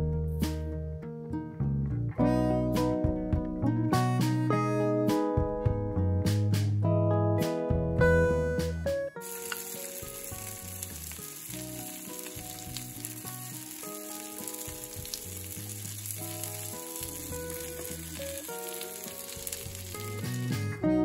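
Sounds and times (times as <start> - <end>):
cutlets sizzling in oil: 9.2 - 20.7.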